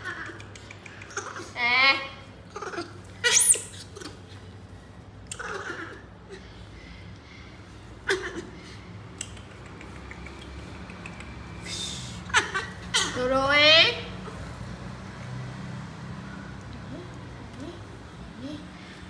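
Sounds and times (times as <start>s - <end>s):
baby monkeys fussing: 0.0s - 13.4s.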